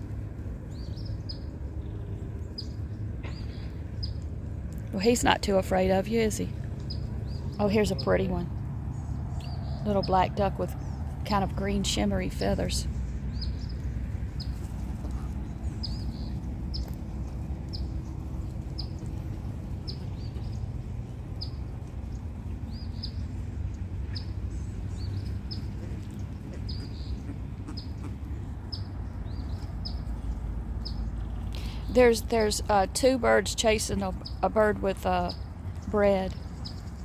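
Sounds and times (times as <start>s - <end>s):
steady low rumble: 0.0s - 37.0s
small bird chirping: 24.1s - 32.0s.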